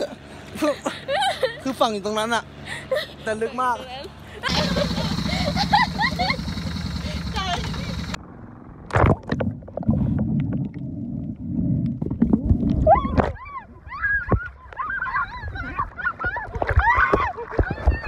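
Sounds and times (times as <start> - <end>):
muffled water sloshing and bubbling: 7.9 - 14.8.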